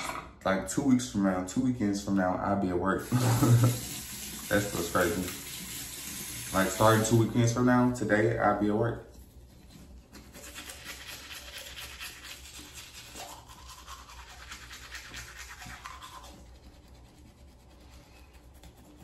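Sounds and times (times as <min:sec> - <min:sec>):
toothbrush scrubbing teeth: 0:03.0 - 0:07.2, 0:09.2 - 0:19.0.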